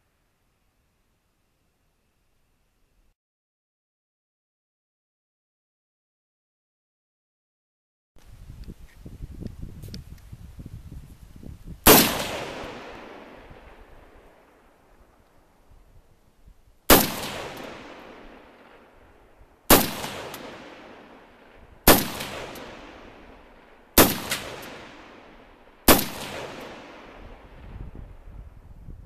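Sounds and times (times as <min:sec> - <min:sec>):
gunshot echo from hills: 0:11.8 - 0:14.7, 0:16.9 - 0:28.2
pistol shots: 0:11.9 - 0:13.7, 0:16.9 - 0:18.8, 0:19.7 - 0:21.2, 0:21.8 - 0:27.2.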